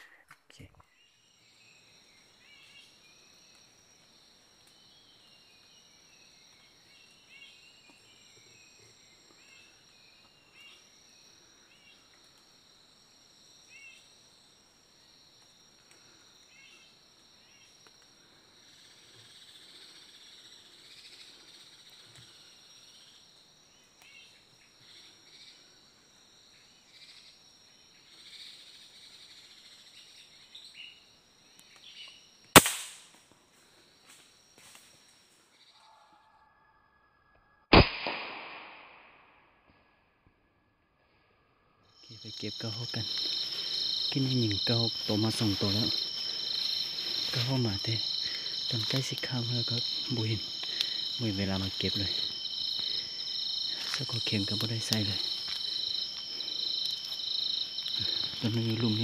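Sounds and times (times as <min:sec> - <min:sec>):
high-pitched insect drone: 0:41.9 - 0:59.0.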